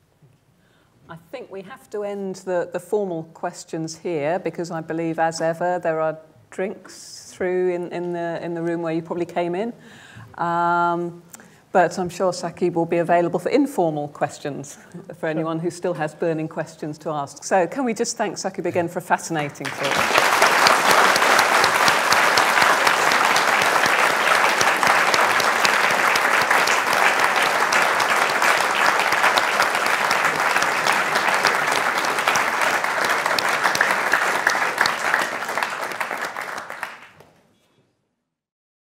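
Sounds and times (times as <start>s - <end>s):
audience clapping: 19.6s - 37.4s.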